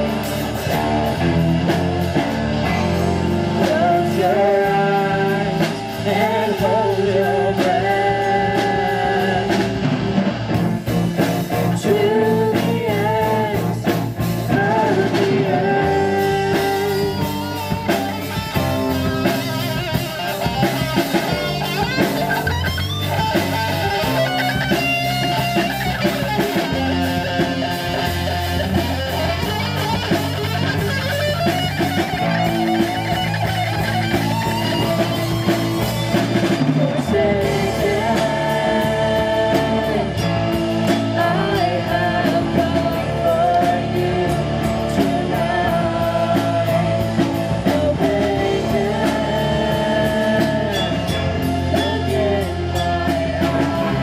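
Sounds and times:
bass guitar: 0:00.0 - 0:54.0
drum kit: 0:00.0 - 0:54.0
electric guitars: 0:00.0 - 0:54.0
man singing: 0:02.7 - 0:09.9, 0:11.2 - 0:18.2, 0:36.4 - 0:54.0
woman singing: 0:03.5 - 0:09.8, 0:11.4 - 0:17.6, 0:36.8 - 0:40.3, 0:40.9 - 0:54.0.

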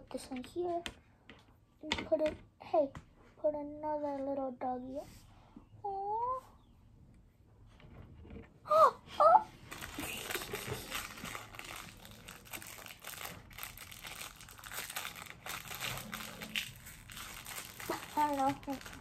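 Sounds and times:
plastic packet crinkling: 0:09.7 - 0:19.0.

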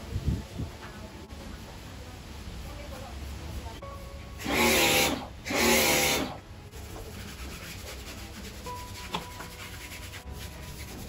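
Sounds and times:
pressure washer spraying: 0:04.4 - 0:06.4
wash mitt scrubbing car body: 0:06.8 - 0:11.0.

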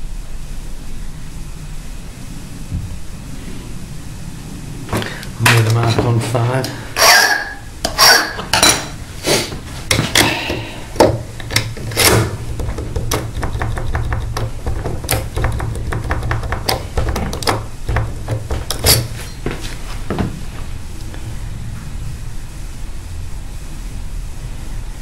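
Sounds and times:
handling knocks and scrapes: 0:04.9 - 0:20.5.

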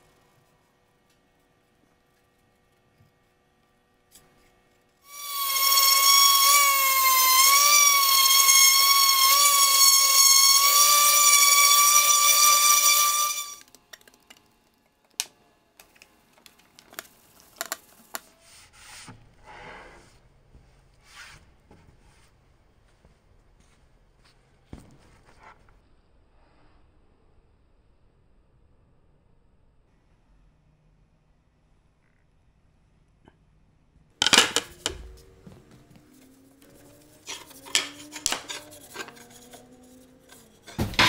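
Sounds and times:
shop tool high-pitched whine: 0:05.1 - 0:13.6.

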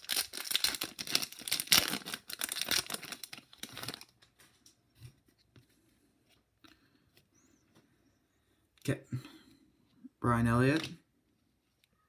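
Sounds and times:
foil wrapper tearing and crinkling: 0:00.0 - 0:04.1.

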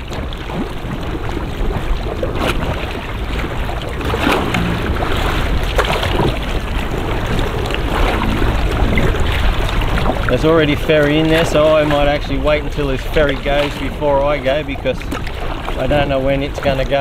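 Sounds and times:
short splashes: 0:00.0 - 0:17.0
water lapping: 0:00.0 - 0:17.0
wind buffeting microphone: 0:00.0 - 0:17.0.

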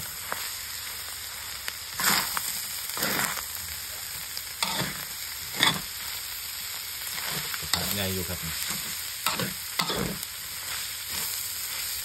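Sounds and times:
meat sizzling in a wok: 0:00.0 - 0:12.0
metal spatula scraping pan: 0:04.6 - 0:05.9, 0:08.7 - 0:10.2.

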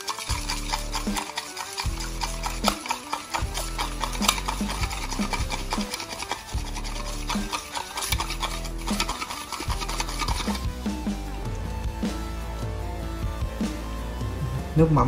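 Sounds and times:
spoon scraping metal bowl: 0:00.0 - 0:11.4.

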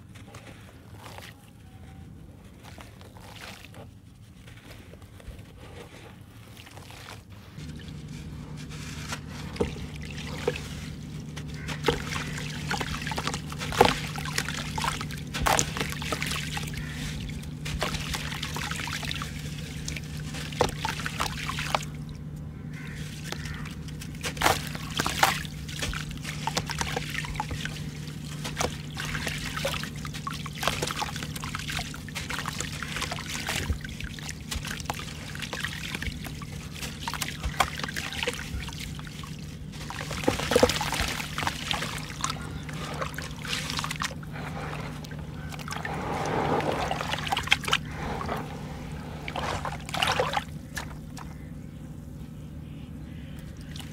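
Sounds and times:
steady low hum: 0:00.0 - 0:53.9
sand trickling into water: 0:02.4 - 0:51.4
sand block crunching: 0:02.5 - 0:21.4, 0:44.2 - 0:49.8.

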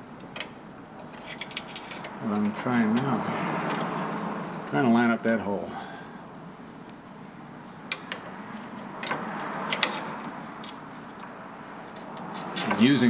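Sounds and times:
wrench clinking against metal: 0:07.9 - 0:11.0.

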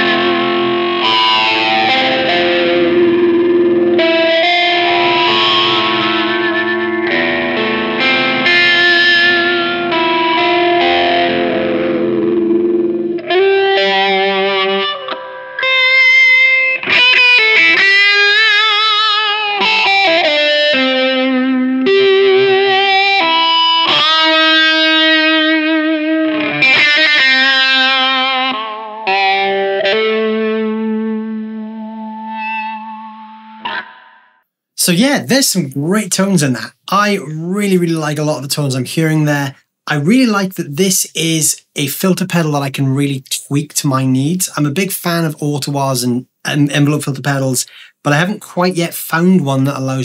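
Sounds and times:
electric guitar with envelope filter: 0:00.0 - 0:36.8.

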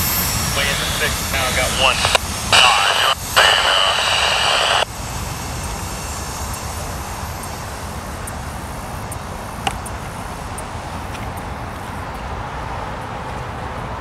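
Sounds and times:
loud hissing roar with whine: 0:00.0 - 0:12.8
steady low rumble: 0:00.0 - 0:14.0.

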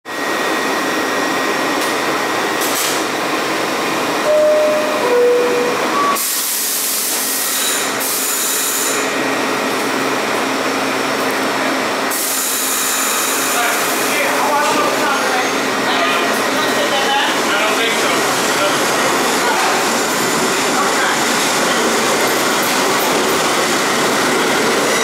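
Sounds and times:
subway train equipment hum and hiss: 0:00.1 - 0:25.0
two-tone descending door chime: 0:04.2 - 0:06.2.

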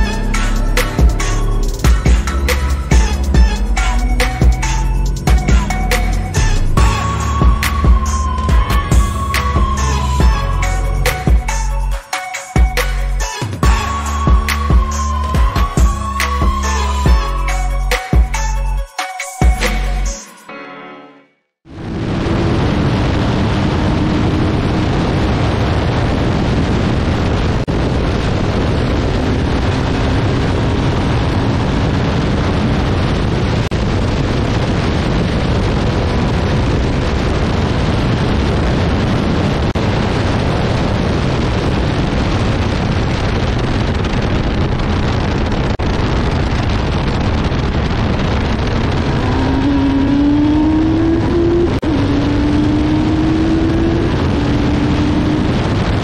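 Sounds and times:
race car engine: 0:21.7 - 0:26.7, 0:48.4 - 0:56.0
wind rush: 0:21.7 - 0:56.0.

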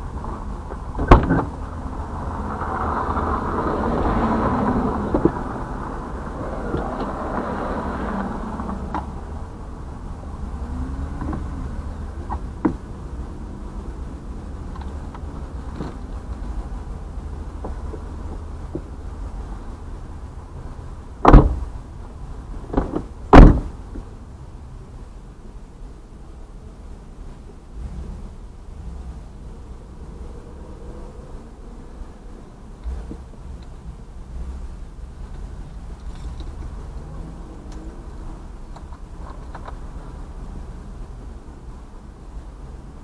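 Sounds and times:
car passing on dirt road: 0:00.0 - 0:14.1, 0:27.8 - 0:41.3
steady low rumble: 0:00.0 - 0:43.0.

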